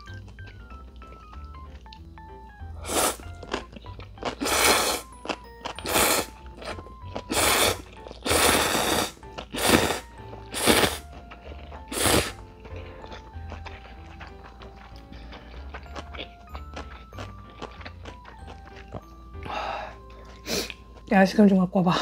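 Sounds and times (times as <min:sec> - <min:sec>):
light background music: 0:00.0 - 0:22.0
person slurping noodles: 0:02.8 - 0:03.3, 0:04.3 - 0:05.1, 0:05.8 - 0:06.4, 0:07.2 - 0:11.0, 0:11.9 - 0:12.4.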